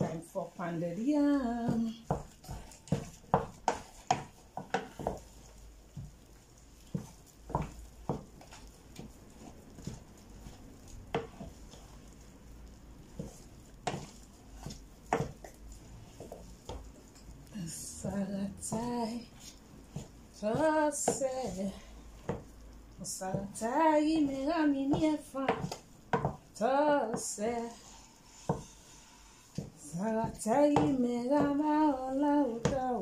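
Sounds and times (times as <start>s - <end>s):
wooden spoon knocking on saucepan: 1.6s - 6.2s, 6.9s - 11.8s, 13.1s - 16.9s, 24.9s - 26.5s.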